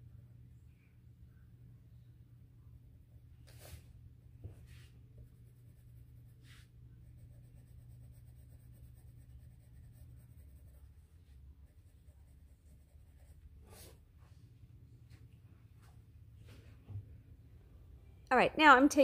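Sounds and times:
pencil shading on paper: 5.2 - 14.0.

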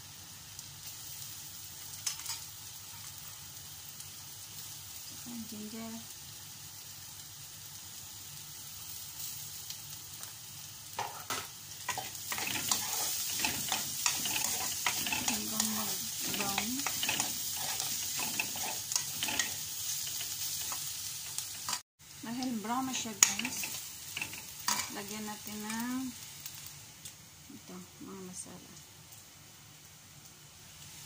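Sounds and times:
onion sizzling in oil: 0.0 - 31.0
utensil stirring and scraping: 11.9 - 20.8.

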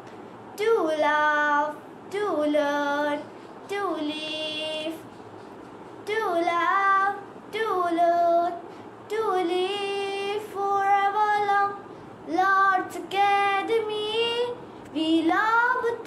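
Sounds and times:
girl singing unaccompanied: 0.6 - 5.2, 6.0 - 16.0
singer breathing: 11.8 - 12.2.

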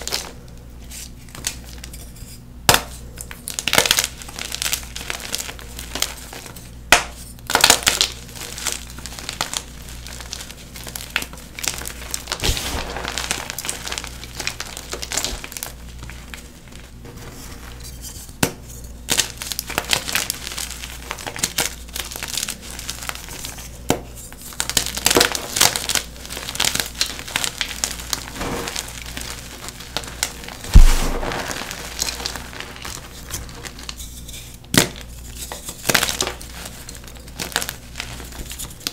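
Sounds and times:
heavy thump: 30.7 - 31.6.

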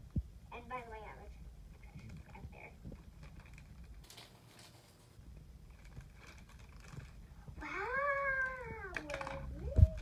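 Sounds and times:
plastic wrapping rustling: 1.8 - 10.0.

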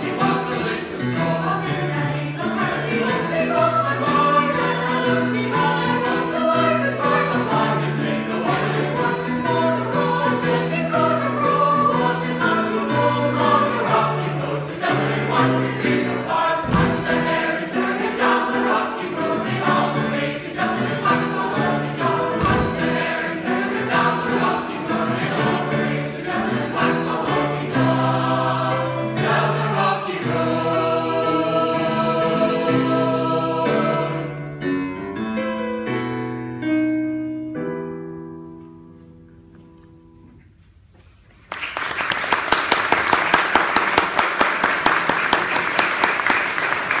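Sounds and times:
choir singing a cappella: 0.0 - 35.1
applause: 41.4 - 47.0.

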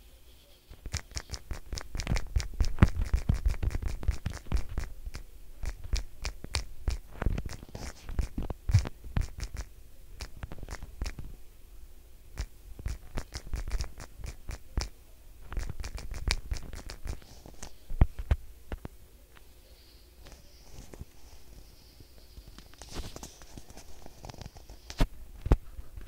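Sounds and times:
fingertips tapping on touchscreen: 0.7 - 11.3, 12.4 - 14.9, 15.5 - 18.9.

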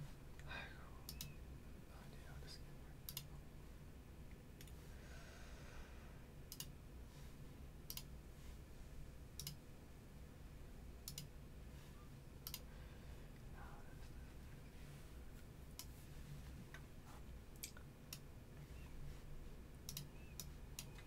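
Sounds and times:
faint low hum: 0.0 - 21.0
computer mouse clicking: 1.1 - 1.4, 3.1 - 3.3, 6.5 - 6.7, 7.9 - 8.1, 9.4 - 9.6, 11.0 - 11.3, 12.4 - 12.7, 19.8 - 21.0.

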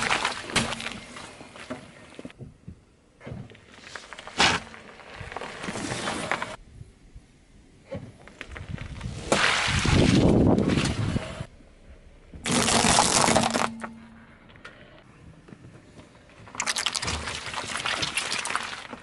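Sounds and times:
bag of water beads bursting: 12.4 - 13.8, 16.5 - 19.0
crunching burst: 12.4 - 13.9
crackling squish of jelly block: 12.5 - 13.8, 16.5 - 19.0.

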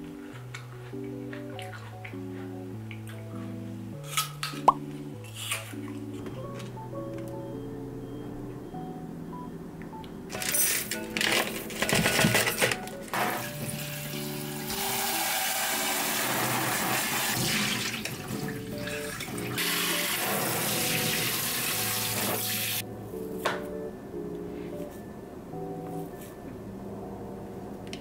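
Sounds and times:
light background music: 0.0 - 28.0
tap water running into sink: 13.2 - 22.8.

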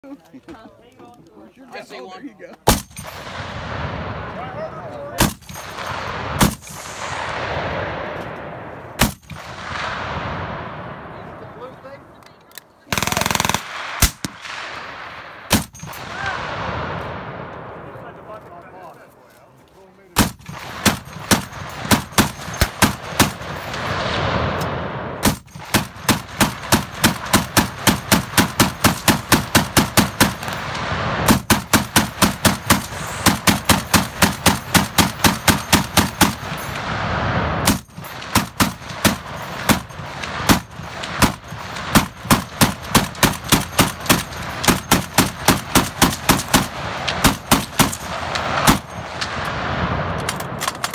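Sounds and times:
heavy machine gun firing: 9.0 - 10.5, 12.9 - 16.9, 20.2 - 24.6, 25.2 - 37.0, 37.6 - 50.9.

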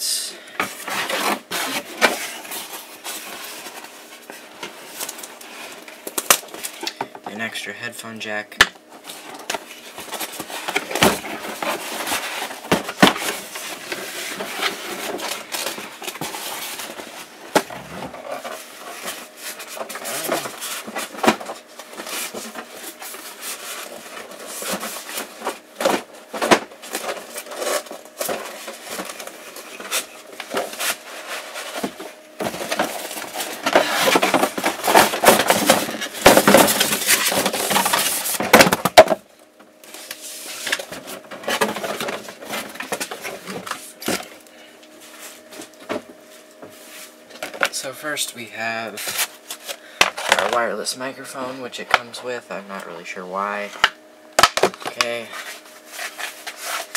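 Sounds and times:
cardboard box rustling and scraping: 0.7 - 5.8, 9.0 - 39.1, 55.2 - 56.9.

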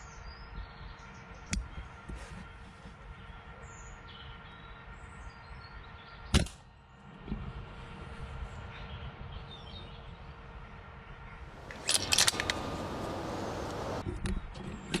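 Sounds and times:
faint birdsong: 0.0 - 7.3, 8.1 - 14.0
air rifle shot crack: 11.6 - 14.0.

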